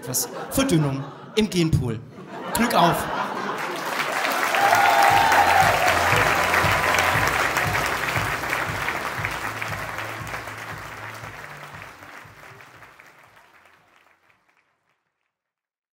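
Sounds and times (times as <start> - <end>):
audience applauding: 3.2 - 15.2.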